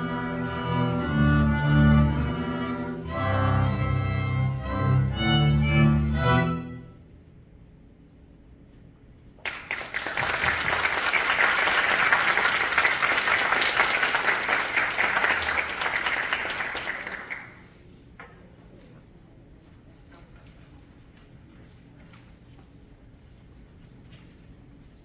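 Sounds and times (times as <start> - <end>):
audience applauding: 9.4 - 17.8.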